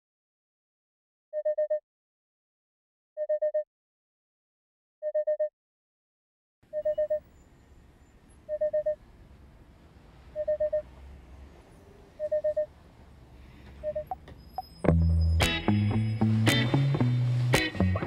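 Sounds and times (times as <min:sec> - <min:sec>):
alarm clock beeping: 0:06.7 - 0:07.3, 0:08.5 - 0:09.0, 0:10.4 - 0:10.9, 0:12.2 - 0:12.7, 0:13.8 - 0:16.3.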